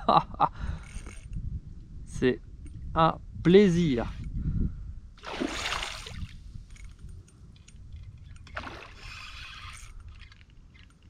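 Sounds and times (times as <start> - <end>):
wind rumble on microphone: 0.0 - 11.0
fish splashing at water surface: 5.2 - 6.3.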